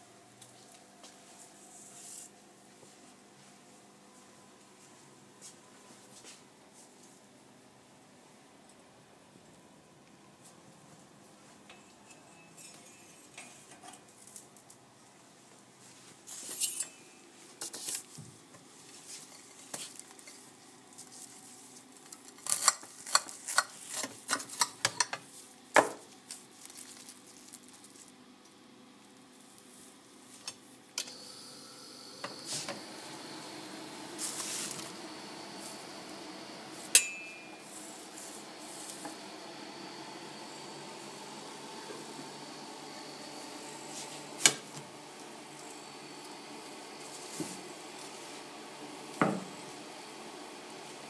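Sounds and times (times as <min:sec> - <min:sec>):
toaster running: 0:31.0 - 0:51.0
sharp metallic clink: 0:37.0 - 0:37.6.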